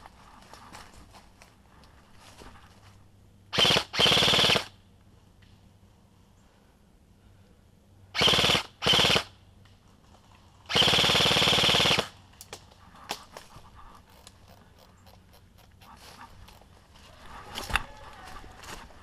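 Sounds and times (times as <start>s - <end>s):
airsoft gun firing bursts: 3.5s - 4.7s, 8.2s - 9.3s, 10.7s - 12.2s.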